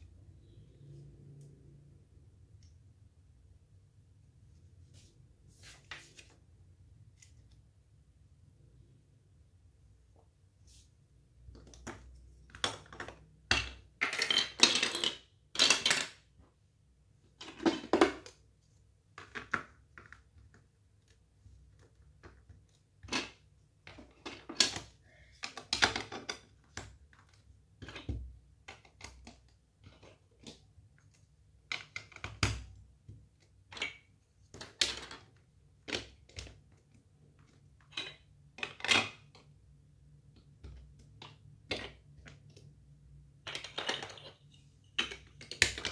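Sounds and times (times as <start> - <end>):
plastic bricks clicking and clattering: 11.5 - 16.2, 21.7 - 39.6, 43.4 - 45.9.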